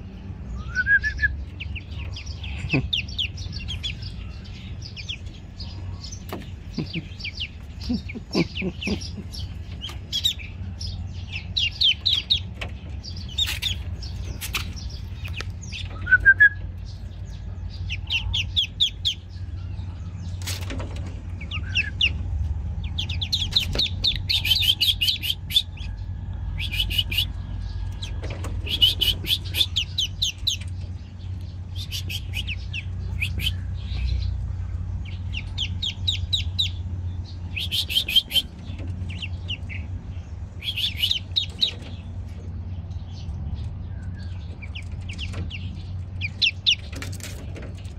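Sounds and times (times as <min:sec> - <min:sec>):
low rumble: 0:00.0 - 0:37.6
ducklings peeping: 0:00.0 - 0:47.9.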